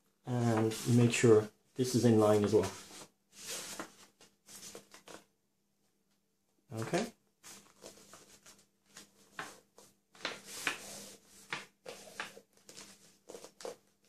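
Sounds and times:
paper rustling and crinkling: 0:02.2 - 0:05.3, 0:07.4 - 0:14.0.

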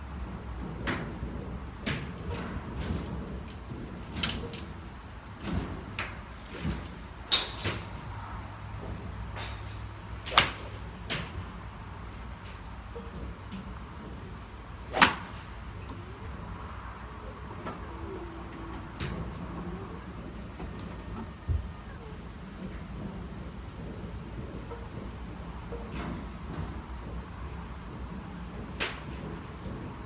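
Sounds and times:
golf clubs striking balls: 0:05.4 - 0:08.1, 0:08.8 - 0:16.3, 0:24.2 - 0:29.9.

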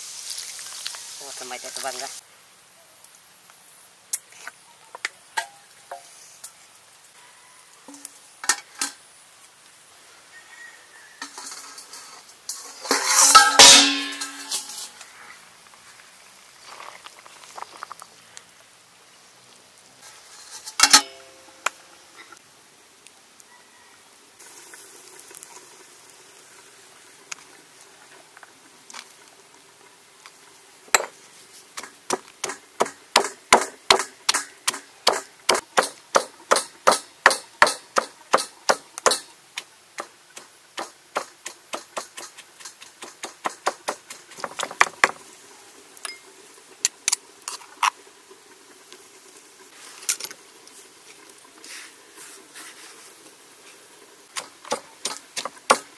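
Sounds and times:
pestle pounding in stone mortar: 0:31.8 - 0:39.2, 0:40.8 - 0:45.2.

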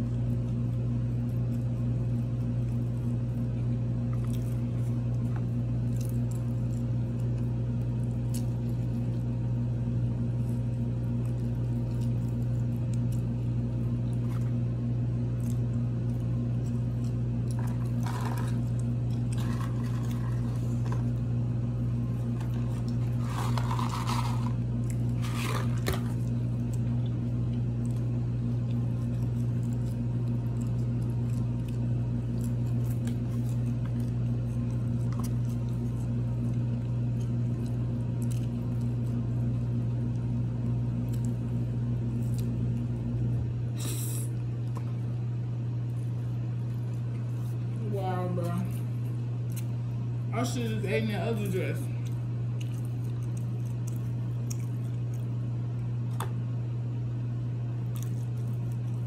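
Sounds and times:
steady low hum: 0:00.0 - 0:59.0
person chewing: 0:00.1 - 0:47.7, 0:49.0 - 0:50.0, 0:52.0 - 0:56.5, 0:57.7 - 0:59.0
paper packaging rustling: 0:22.5 - 0:24.6.

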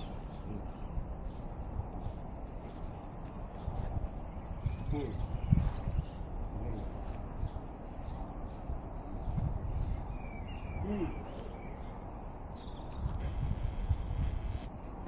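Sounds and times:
wind rumble on microphone: 0:00.0 - 0:14.8
faint bird chirps: 0:09.1 - 0:14.9.

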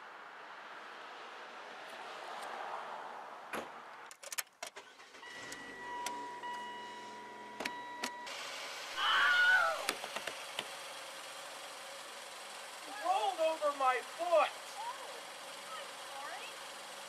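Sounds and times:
car door shutting: 0:04.6 - 0:08.3
high-pitched dashboard chime: 0:05.2 - 0:08.3
car engine idling: 0:09.8 - 0:17.0.

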